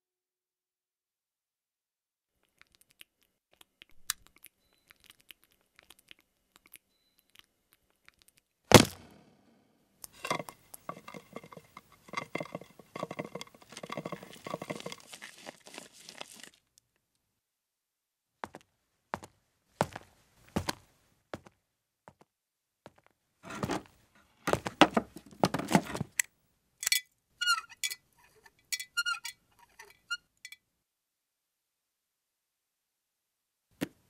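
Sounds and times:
sharp crack: 8.7 - 9.2
dense crackling and tearing: 13.3 - 16.7.

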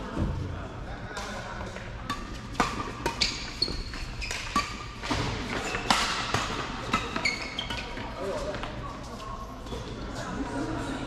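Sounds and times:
rackets striking shuttlecock: 2.0 - 8.0
shoes squeaking on court: 2.1 - 10.4.

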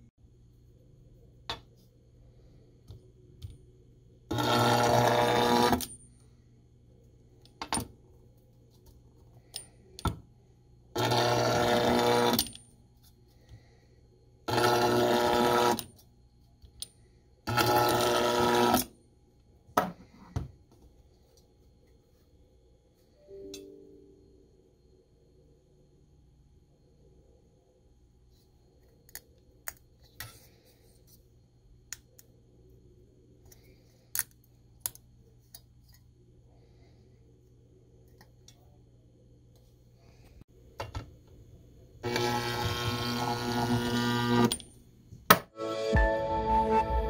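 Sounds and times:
welder buzzing: 4.3 - 5.9, 10.9 - 12.5, 14.4 - 15.9, 17.5 - 18.9, 42.0 - 44.6.

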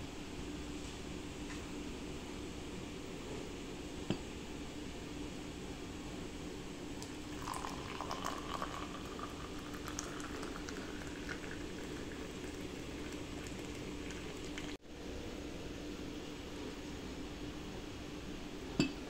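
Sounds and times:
drink pouring into glass: 7.0 - 14.8
froth fizzing: 7.0 - 14.8.

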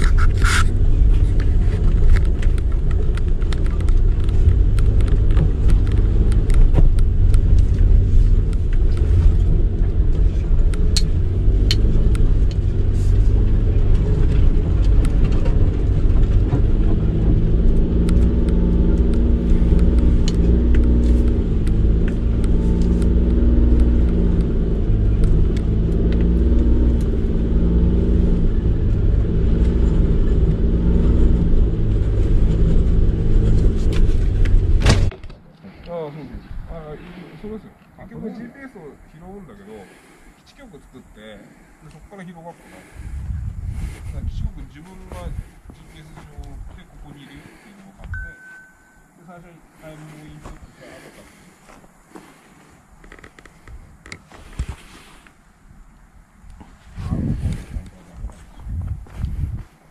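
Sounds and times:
road noise on bumpy track: 0.0 - 59.9
van engine hum: 0.0 - 59.9
sharp knocks and clicks: 10.6 - 12.7.

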